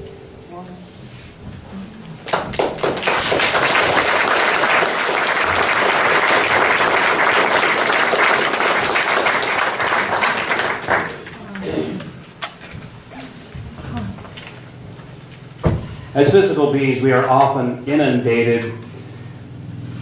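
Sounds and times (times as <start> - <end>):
audience applauding: 2.2 - 11.7.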